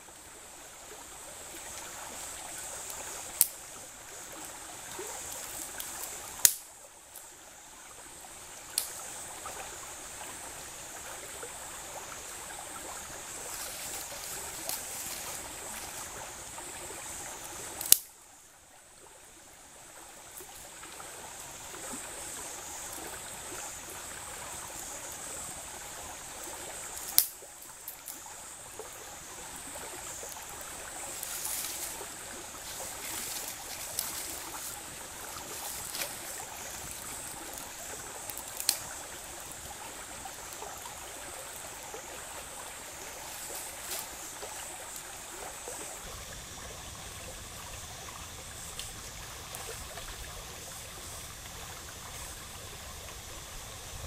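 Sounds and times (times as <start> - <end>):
shallow stream running: 0.0 - 54.0
dry sticks cracking: 6.4 - 6.6, 17.8 - 18.1, 27.0 - 27.4, 38.3 - 38.9.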